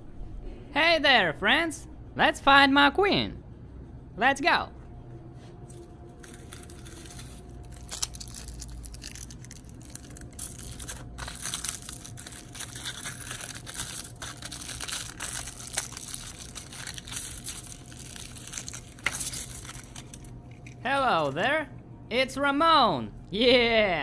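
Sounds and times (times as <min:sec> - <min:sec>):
aluminium foil crinkling and tearing: 0:05.8 - 0:20.8.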